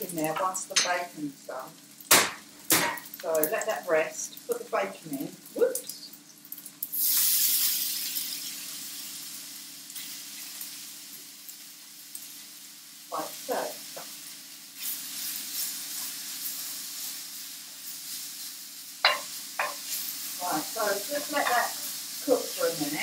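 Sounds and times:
bacon sizzling in a pan: 0.0 - 23.0
sharp knock: 2.1 - 3.0.

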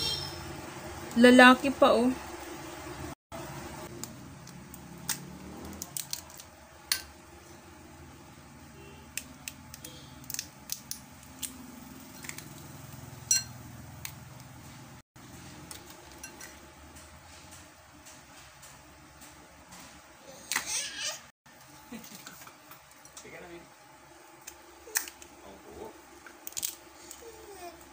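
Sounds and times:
crab shell cracking: 3.9 - 6.5, 9.2 - 11.6, 24.4 - 25.3, 26.3 - 27.2.

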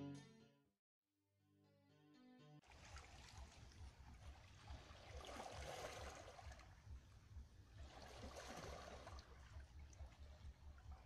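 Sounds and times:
small waves washing over rocks: 2.7 - 6.7, 7.8 - 11.0.

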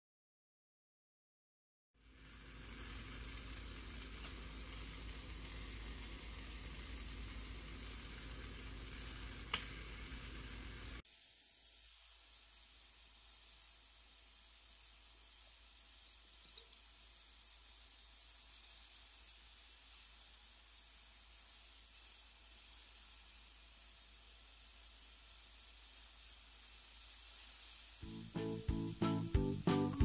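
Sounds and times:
hot dogs sizzling on a grill: 2.0 - 30.0
music: 28.0 - 30.0.

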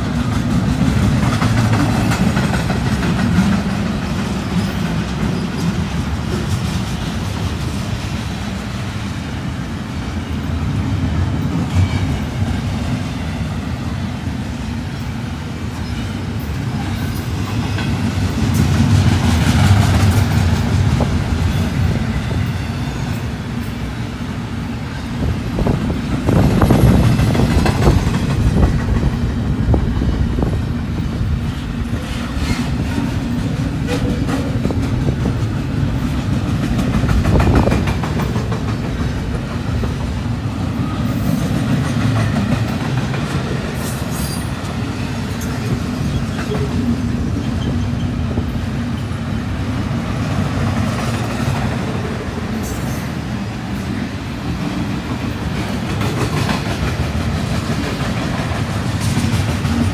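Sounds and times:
train wheels rumbling on rails: 0.0 - 59.9
wheels clacking over track: 32.0 - 40.2.

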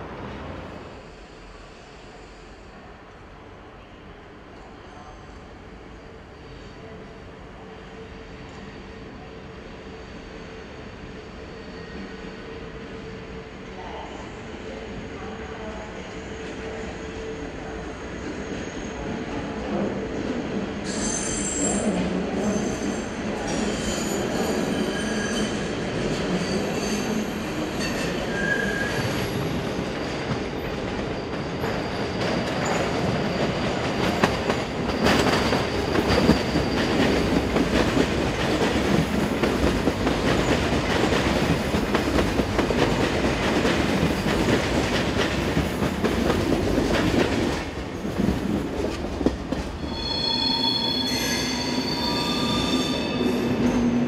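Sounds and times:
train wheels squealing: 10.3 - 13.3, 20.8 - 38.1, 49.7 - 54.0
train wheels rumbling: 24.3 - 54.0.

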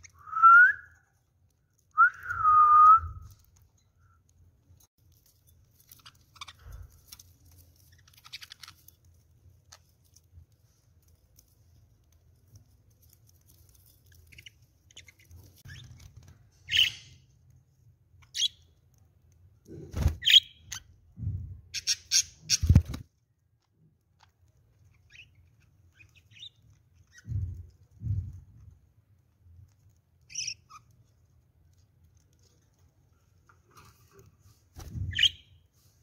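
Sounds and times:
rustling: 3.1 - 20.3
budgerigars chirping and squawking: 16.7 - 17.2.

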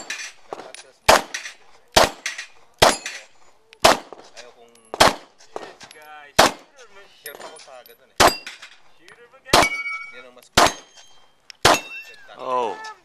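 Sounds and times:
steel plate target clanging: 0.0 - 3.4, 7.3 - 8.9, 9.6 - 12.4
pistol shots: 0.0 - 6.7, 8.2 - 8.7, 9.5 - 11.0, 11.6 - 12.0.

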